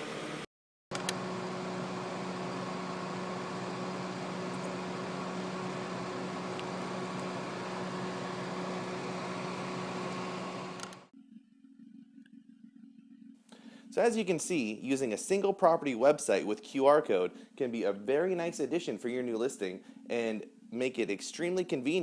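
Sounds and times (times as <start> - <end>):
machine hum: 0.0 - 11.1
click: 0.9 - 1.2, 6.6 - 7.3, 10.8 - 11.0.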